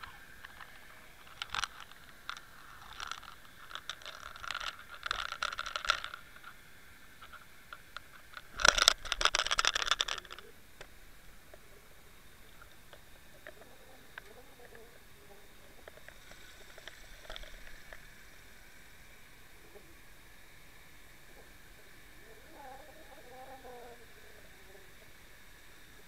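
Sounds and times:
underwater clicking scrapes: 0.0s - 6.6s, 7.2s - 10.5s, 15.8s - 18.2s.

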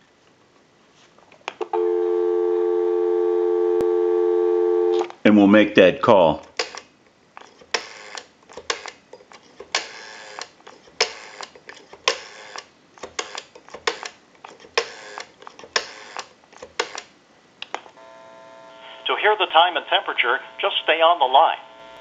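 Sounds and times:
faint telephone line tone: 1.7s - 5.0s, 18.0s - 22.0s
rotary dial whirring and clicking: 6.5s - 17.1s.

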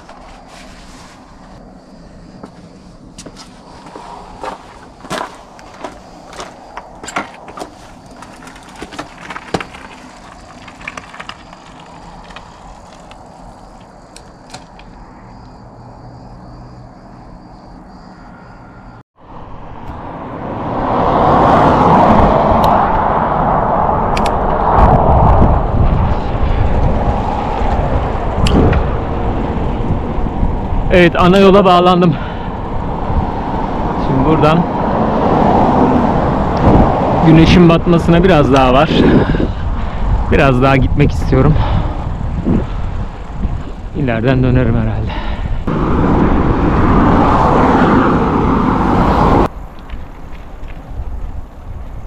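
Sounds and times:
bicycle rolling on road: 0.0s - 18.1s, 20.1s - 52.0s
bicycle clicks and rattles: 5.0s - 15.0s.

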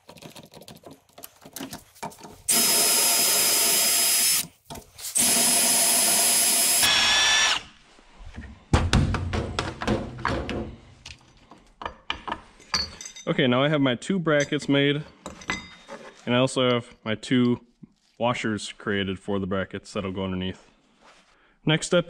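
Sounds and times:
cordless drill boring steel: 2.5s - 4.5s, 5.1s - 7.8s
tools clicking and clattering: 14.4s - 16.2s.

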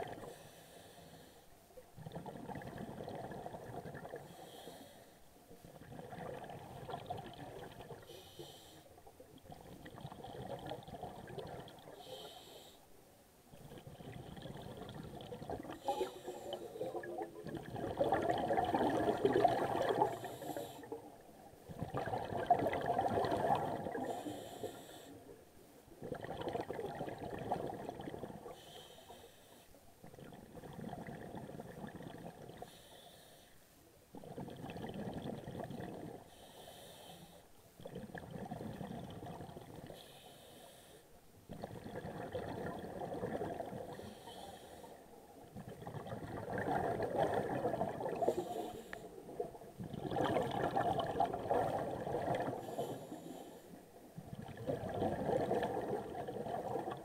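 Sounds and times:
exhaled bubbles underwater: 0.0s - 0.4s, 1.9s - 4.8s, 5.5s - 8.1s, 9.2s - 12.2s, 13.5s - 25.0s, 25.9s - 28.7s, 30.0s - 32.8s, 34.1s - 36.4s, 37.8s - 40.1s, 41.5s - 53.4s, 54.0s - 57.0s
regulator inhale hiss: 0.2s - 1.6s, 4.2s - 5.3s, 8.0s - 9.0s, 11.9s - 13.0s, 15.7s - 17.0s, 20.1s - 21.0s, 24.0s - 25.4s, 28.5s - 29.8s, 32.6s - 33.7s, 36.3s - 37.5s, 39.9s - 41.2s, 43.9s - 45.2s, 48.2s - 49.2s, 52.6s - 53.8s.

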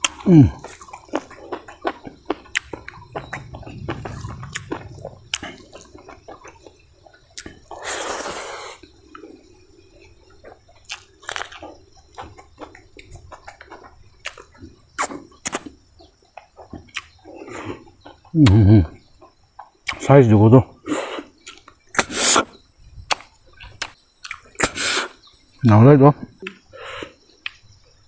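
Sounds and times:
wet chewing: 0.0s - 9.5s, 10.4s - 18.6s, 23.1s - 24.8s
mouth clicks: 18.3s - 18.9s, 23.1s - 25.2s.

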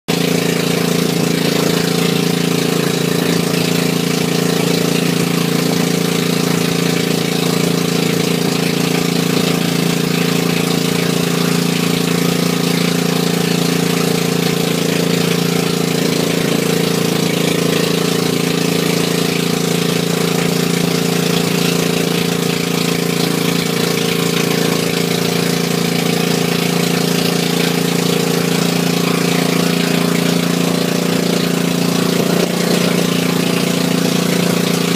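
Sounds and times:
boat engine drone: 0.1s - 34.9s.

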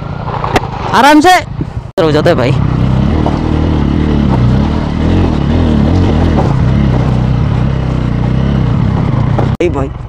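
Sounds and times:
motorcycle engine revving: 2.0s - 10.0s.

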